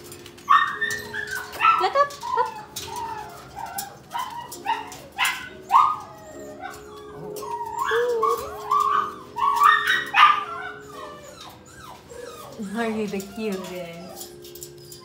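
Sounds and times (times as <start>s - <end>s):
claws clicking on metal: 0.0s - 10.2s, 11.3s - 15.0s
puppies whining and yipping: 0.0s - 15.0s.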